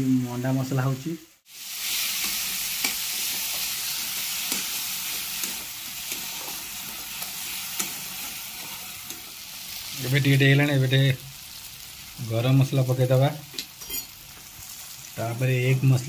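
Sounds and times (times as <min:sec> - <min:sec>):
masala sizzling in pan: 0:00.0 - 0:16.0
metal spatula scraping pan: 0:13.8 - 0:14.2.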